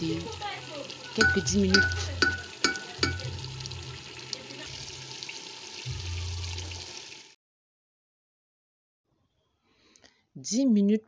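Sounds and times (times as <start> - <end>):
pot sizzling and bubbling: 0.0 - 7.4
wooden spoon knocking on pot: 1.2 - 3.4.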